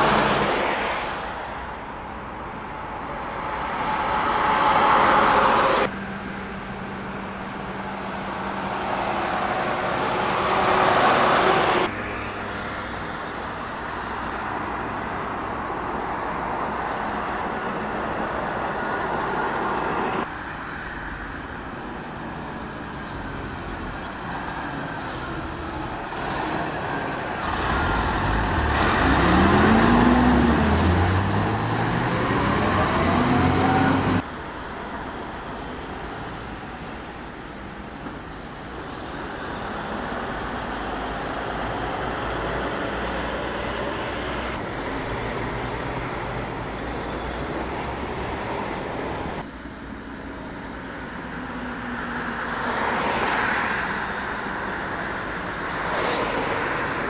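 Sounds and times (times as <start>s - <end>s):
trucks driving by: 0.0s - 57.0s
truck engine pulling away: 23.0s - 34.2s.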